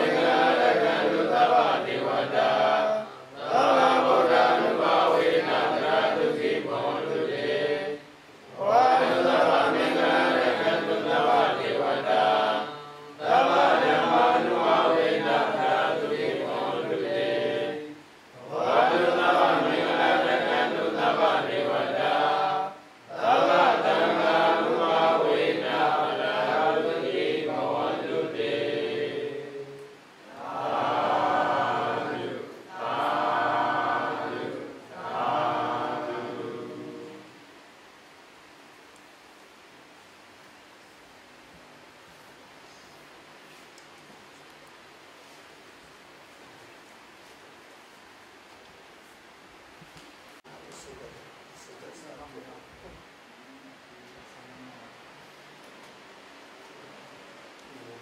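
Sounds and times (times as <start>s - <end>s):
group chanting in unison: 0.0s - 37.4s.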